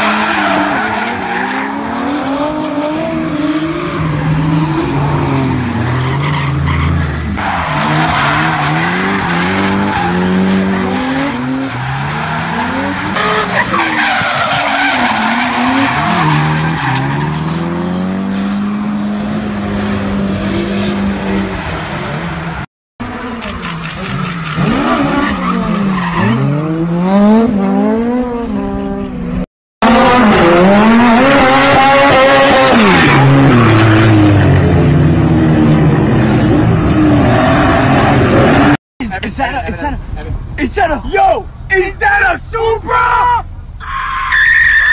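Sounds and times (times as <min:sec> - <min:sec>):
car engines revving hard: 0:00.0 - 0:38.8
tyre screech: 0:42.9 - 0:44.9.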